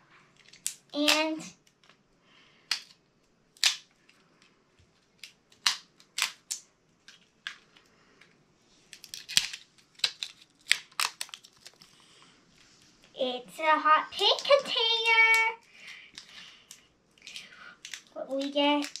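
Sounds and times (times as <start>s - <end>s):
plastic capsule clicking and snapping: 2.7s - 3.0s, 3.6s - 3.9s, 5.2s - 7.6s, 8.9s - 11.9s, 16.2s - 19.0s.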